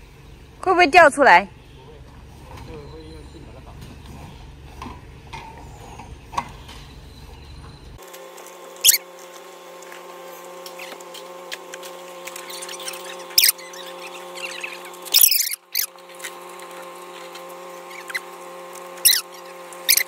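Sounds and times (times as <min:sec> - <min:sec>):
plastic pipes squeaking: 0:10.6 - 0:20.0.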